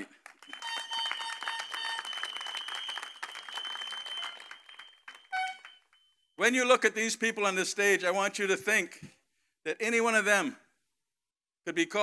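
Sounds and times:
crowd applauding: 0.0 - 6.0.

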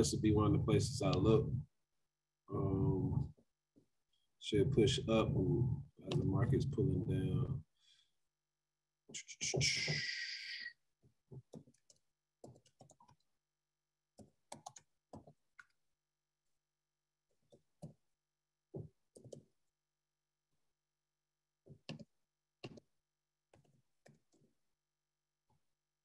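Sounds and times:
computer keyboard typing: 11.4 - 13.3, 14.2 - 15.8, 19.1 - 19.5.

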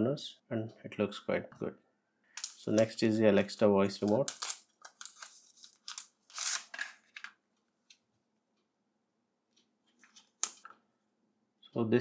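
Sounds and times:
plastic wrapping crinkling: 4.1 - 7.3.

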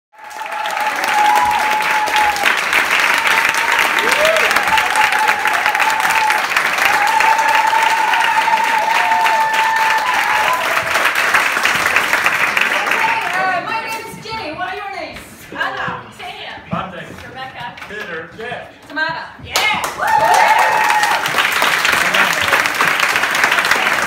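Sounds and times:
crowd cheering: 0.1 - 14.1, 19.5 - 24.0
audience applauding: 0.2 - 13.9, 19.6 - 24.0.

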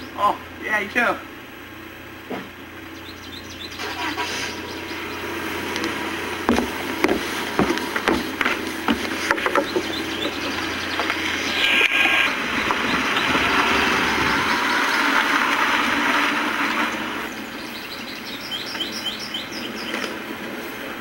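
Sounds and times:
short high bird chirps: 2.9 - 5.3
steady rushing noise: 4.2 - 18.3.

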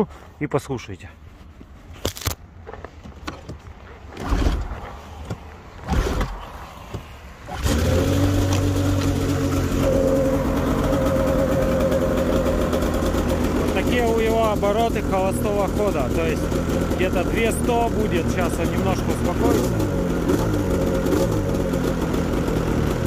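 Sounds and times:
recoil starter pulls: 7.4 - 23.0
snowmobile engine idling: 7.9 - 23.0.

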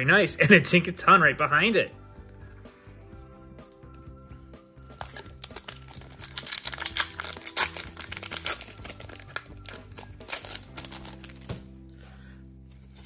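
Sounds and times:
background music: 0.0 - 13.0
foil wrapper crinkling and tearing: 4.9 - 11.6.

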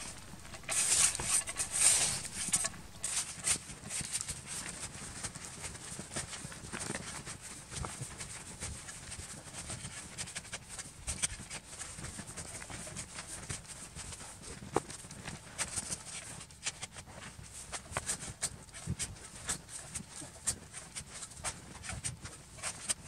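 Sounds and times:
shovel scraping powder snow: 0.0 - 4.1.

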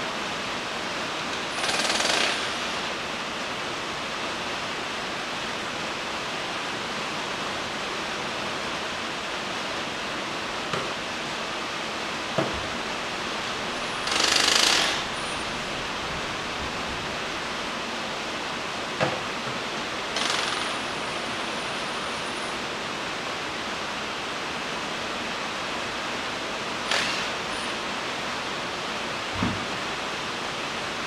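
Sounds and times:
rain hissing: 0.0 - 31.0
cordless impact wrench bursts: 1.5 - 2.9, 13.9 - 15.3, 20.2 - 21.0, 26.8 - 27.8.

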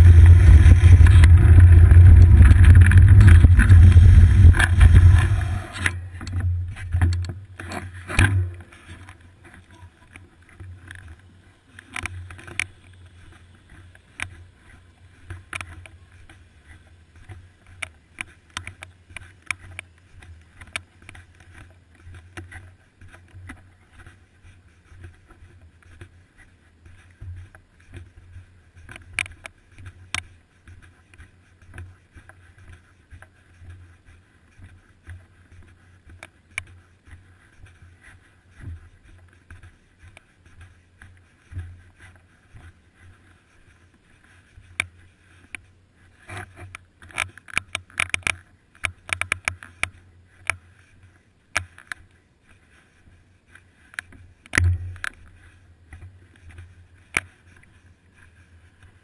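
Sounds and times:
bicycle clicks and rattles: 0.0 - 24.1, 44.7 - 50.6, 51.6 - 52.1
bicycle riding hum: 0.0 - 59.0.

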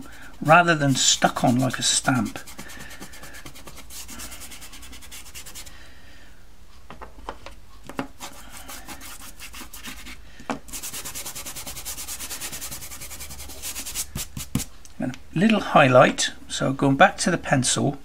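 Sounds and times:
pastel scrubbing on paper: 0.0 - 5.7, 8.2 - 14.7.

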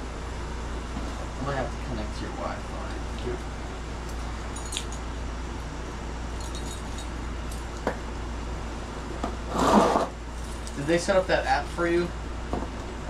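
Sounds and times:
air conditioner humming: 0.0 - 13.0
light clinks: 4.0 - 5.1, 6.3 - 7.8.

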